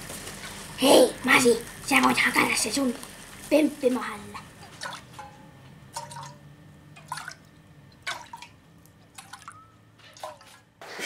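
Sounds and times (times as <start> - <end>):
water dripping: 4.6 - 5.4, 6.0 - 10.6.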